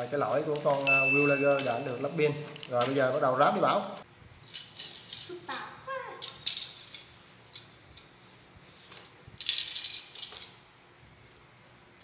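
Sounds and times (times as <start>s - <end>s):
plastic parts rattling on tile: 4.4s - 5.4s, 6.2s - 7.7s, 8.9s - 10.6s.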